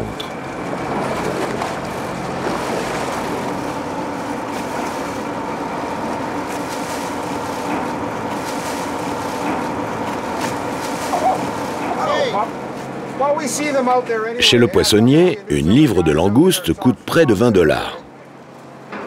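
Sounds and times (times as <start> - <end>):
churning water: 0.0 - 18.9
boat engines humming: 0.0 - 19.0.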